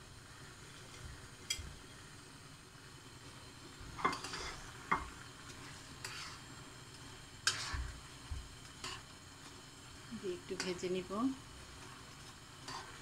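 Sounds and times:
faint sizzle: 0:00.0 - 0:13.0
spatula scraping a wok: 0:04.0 - 0:09.6, 0:10.4 - 0:13.0.

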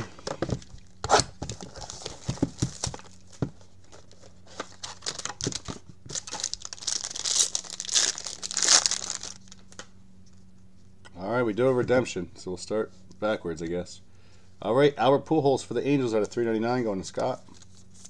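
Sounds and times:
plastic wrapper tearing and crumpling: 0:04.0 - 0:09.8.

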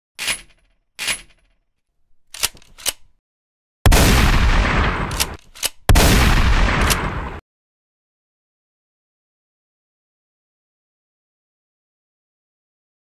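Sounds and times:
shotgun pump action racking: 0:02.1 - 0:03.2, 0:05.1 - 0:06.0
shotgun blast: 0:03.9 - 0:07.4.

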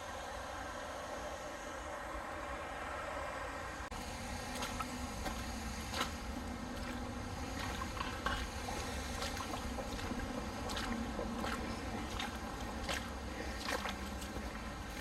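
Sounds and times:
low rumble and hiss: 0:00.0 - 0:15.0
footsteps through shallow water: 0:03.9 - 0:15.0.

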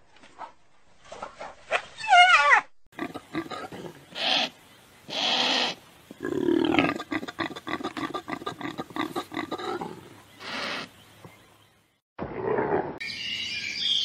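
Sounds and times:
animal grunts: 0:03.0 - 0:04.1, 0:06.2 - 0:10.9.

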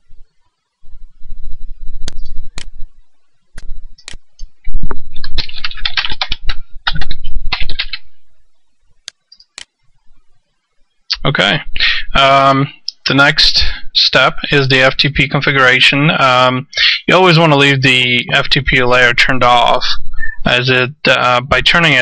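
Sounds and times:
mouse clicks: 0:02.0 - 0:02.8, 0:03.6 - 0:04.5
typing on computer keyboard: 0:05.1 - 0:08.0.

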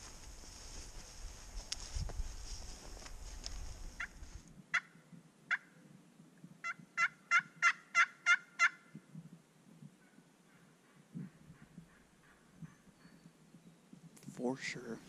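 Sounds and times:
turkey call yelps: 0:06.6 - 0:08.8.

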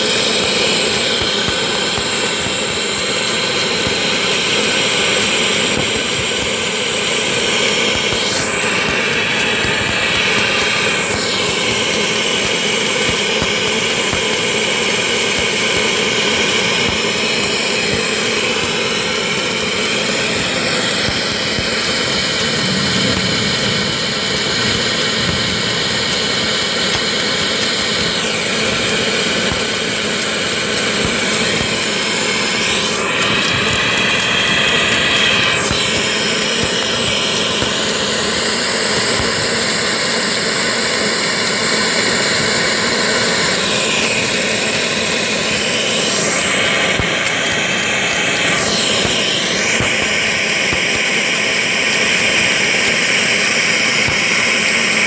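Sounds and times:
welding machine drone: 0:00.0 - 0:55.0
sweeping tones: 0:17.1 - 0:36.1.

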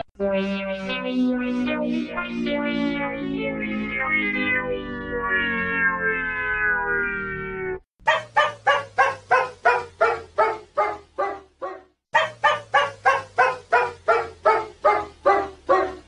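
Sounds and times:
cartoon dog barking: 0:08.0 - 0:16.0.

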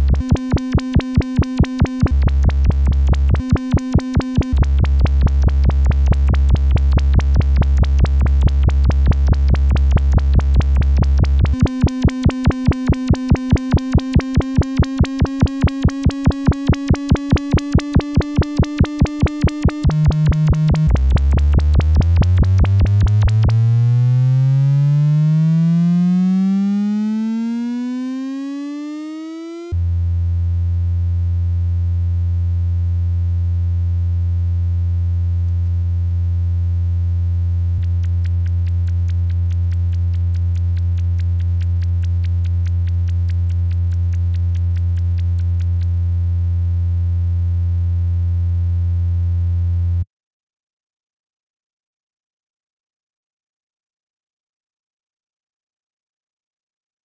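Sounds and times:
steady low electronic tone: 0:00.0 - 0:28.1
electronic tone gliding upward: 0:11.5 - 0:29.7.

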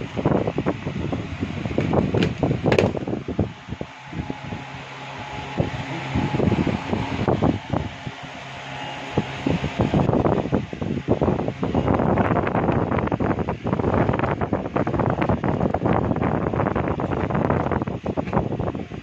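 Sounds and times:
electric fan humming: 0:00.0 - 0:19.0.

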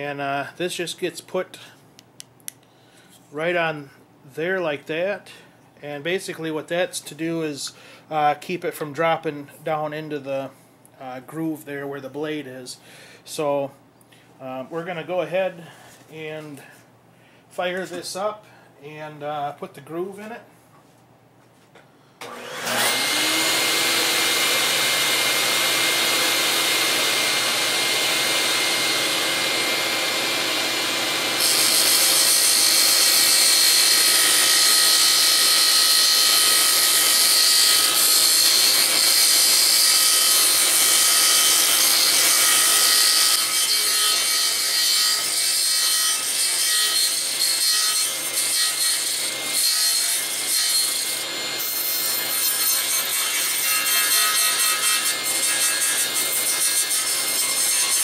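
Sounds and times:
table saw spinning up: 0:22.2 - 0:43.9
saw blade cutting wood: 0:22.2 - 0:58.0.

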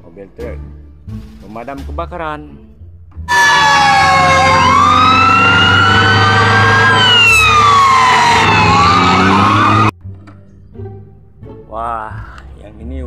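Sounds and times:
fire engine siren wailing: 0:03.3 - 0:09.9
second siren tone: 0:03.3 - 0:09.9
truck engine rumble: 0:03.3 - 0:09.9.

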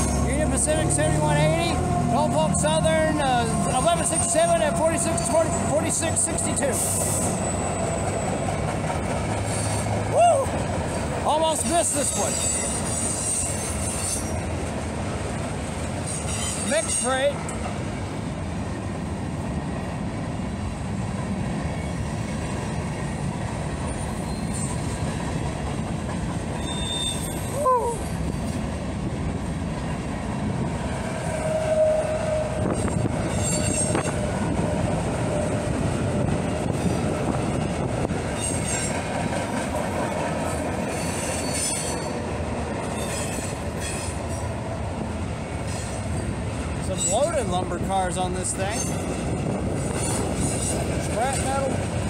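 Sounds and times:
train wheels rumbling on rail: 0:00.0 - 0:52.0
wheel squeal: 0:12.2 - 0:14.5, 0:24.0 - 0:25.0, 0:26.6 - 0:27.6, 0:31.3 - 0:34.2, 0:40.9 - 0:42.2, 0:42.9 - 0:44.2.

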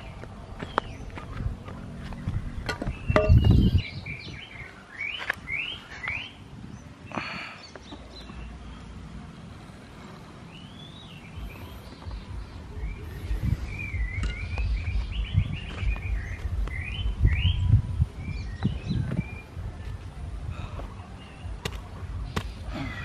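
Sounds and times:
small birds chirping: 0:00.0 - 0:23.0
thuds in loose soil: 0:20.7 - 0:23.0.

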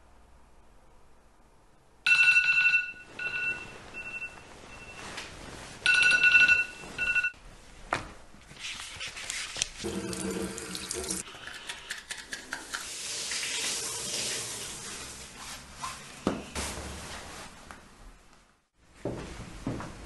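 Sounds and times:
smartphone alarm chime: 0:02.1 - 0:05.0, 0:05.9 - 0:07.4
rustling and shuffling: 0:03.1 - 0:09.8, 0:14.9 - 0:20.0.

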